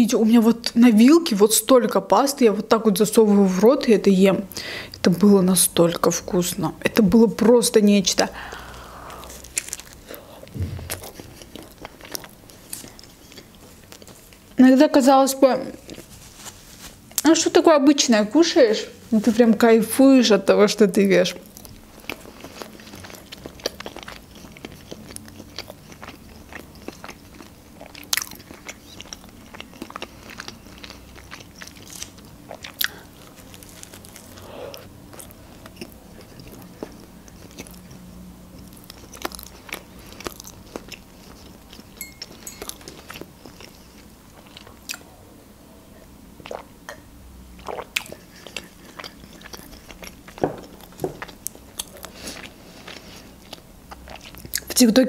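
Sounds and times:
faint low hum: 0.0s - 55.0s
wet chewing mouth clicks: 9.1s - 14.1s, 46.4s - 47.0s, 47.6s - 52.2s.

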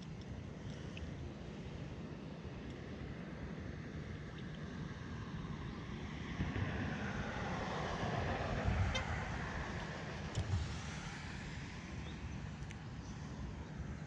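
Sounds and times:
car tyre and road noise: 0.0s - 14.0s
wind buffeting microphone: 5.4s - 14.0s.

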